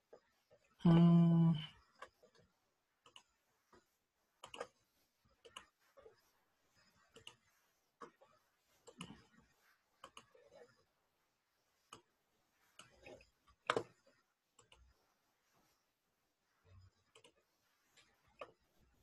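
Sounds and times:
computer mouse clicks: 2.0 - 3.4, 4.4 - 4.8, 5.4 - 5.8, 7.1 - 8.2, 10.0 - 10.7, 12.8 - 14.0, 14.6 - 14.9, 17.1 - 17.4.

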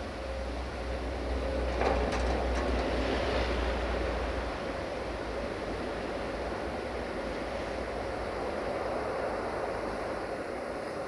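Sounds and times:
train low rumble: 0.0 - 11.0
train clatter: 1.4 - 6.2.

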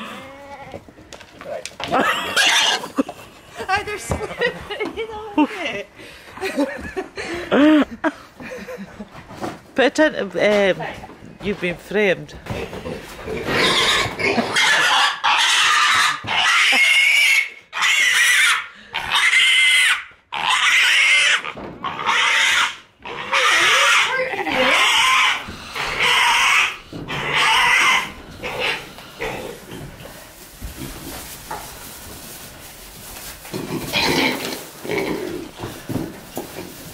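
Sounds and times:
piglet squealing: 2.1 - 2.8, 13.6 - 28.8.

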